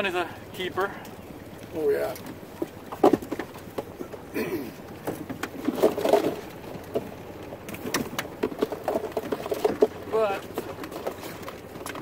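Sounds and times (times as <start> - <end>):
crab pot clicks and scrapes: 5.0 - 12.0.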